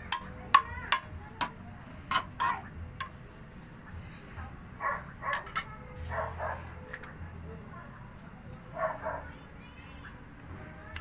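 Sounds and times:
metal spatula clanking on wok: 0:00.0 - 0:03.2, 0:05.3 - 0:05.7.

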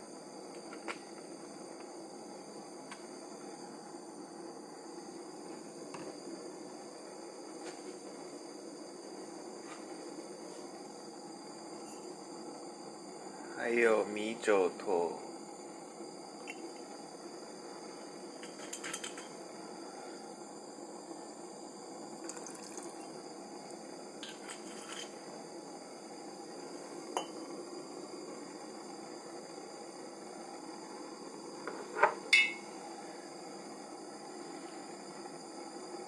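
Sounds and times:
steady low hiss: 0:00.0 - 0:36.0
glass and metal clinking: 0:32.0 - 0:32.6.

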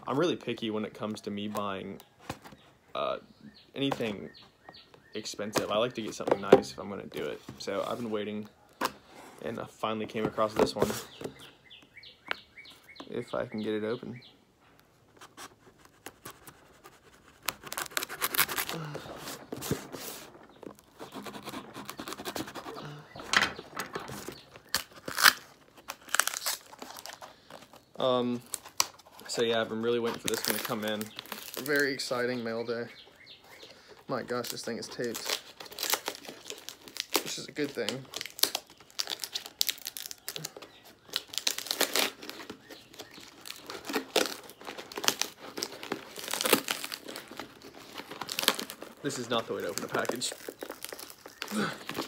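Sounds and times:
knife scraping packing tape: 0:15.2 - 0:22.9, 0:24.1 - 0:27.3, 0:41.2 - 0:52.0
cardboard box tearing and crumpling: 0:15.2 - 0:23.2, 0:23.8 - 0:32.1, 0:34.2 - 0:52.0.

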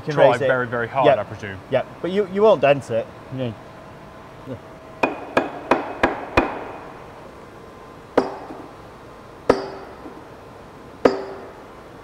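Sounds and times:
metal tube striking steel bars: 0:08.2 - 0:08.7, 0:09.5 - 0:10.2, 0:11.0 - 0:11.6.

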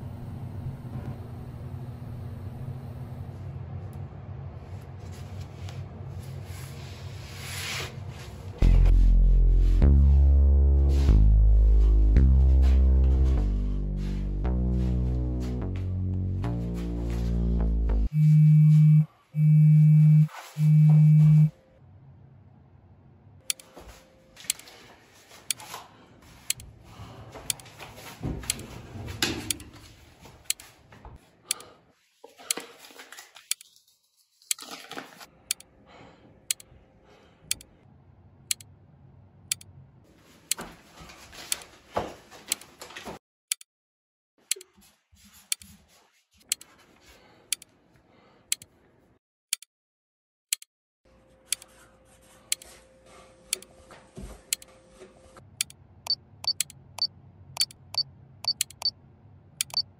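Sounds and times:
clock ticking: 0:56.4 - 0:56.7, 0:59.6 - 0:59.8.

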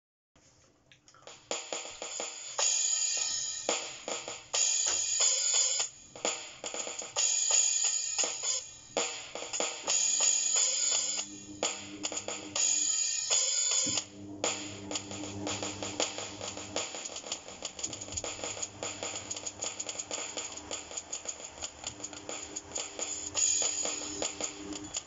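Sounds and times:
electronic hi-hat pattern: 0:01.3 - 0:25.0
cymbal hits: 0:09.9 - 0:25.0
low steady hum: 0:10.6 - 0:25.0
bass drum hits: 0:13.9 - 0:23.5.

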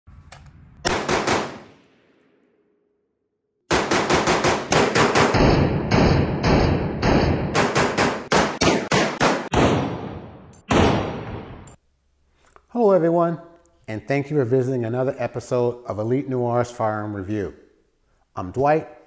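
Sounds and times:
rifle shots: 0:00.8 - 0:02.3, 0:03.7 - 0:11.7.

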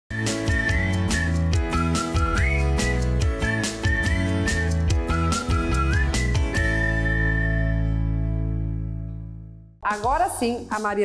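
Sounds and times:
upbeat music with bass and beat: 0:00.1 - 0:08.1
whistled melody: 0:00.1 - 0:08.5.

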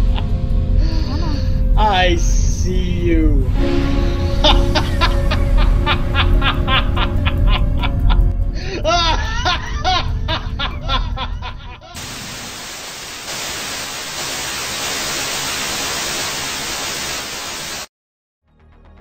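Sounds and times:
person laughing: 0:00.8 - 0:01.6, 0:04.2 - 0:12.0
static hiss: 0:12.0 - 0:17.9.

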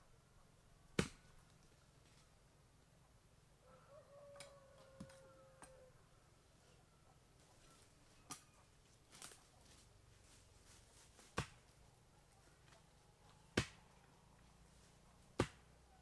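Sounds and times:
blade chopping into wood: 0:15.4 - 0:15.6.

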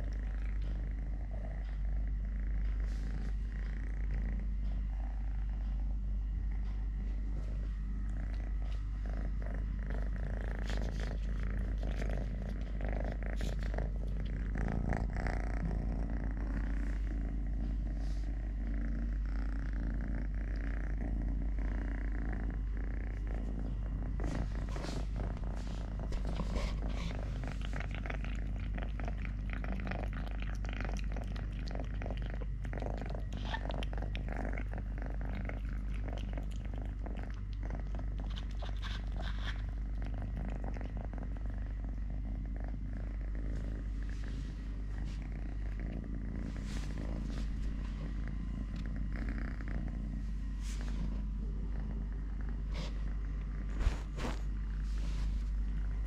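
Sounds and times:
kitten purring: 0:00.0 - 0:56.0.

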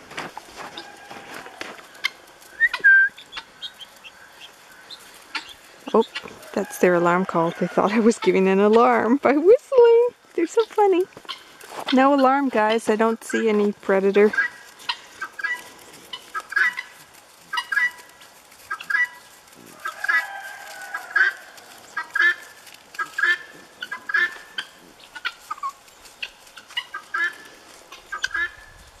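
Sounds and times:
guinea fowl alarm calls: 0:01.9 - 0:06.4, 0:10.4 - 0:28.9.

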